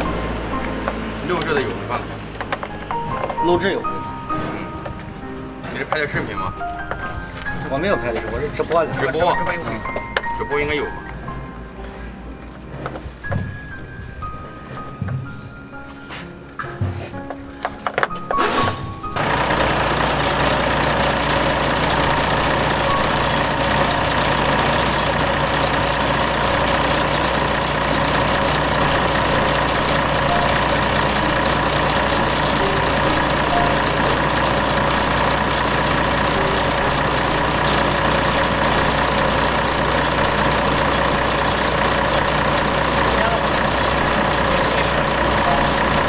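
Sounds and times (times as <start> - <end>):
diesel truck engine idling: 0.0 - 14.8, 18.5 - 46.0.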